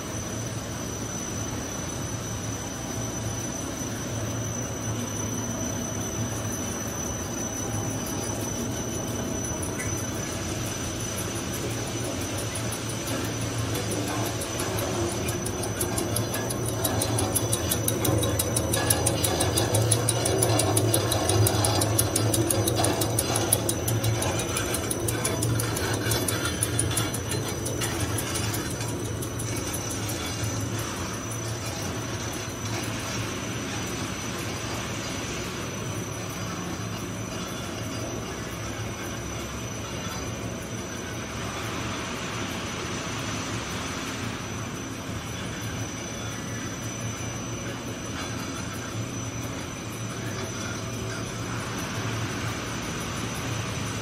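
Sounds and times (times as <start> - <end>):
thin high whine: 0.0 - 54.0
wire drawing machine drone: 0.0 - 54.0
rapid mechanical ticking: 2.7 - 54.0
low hum: 6.2 - 34.7.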